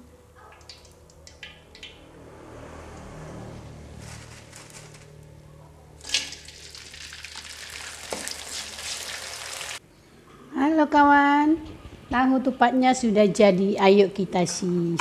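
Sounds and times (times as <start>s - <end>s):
crackers sizzling in hot oil: 6.0s - 9.8s.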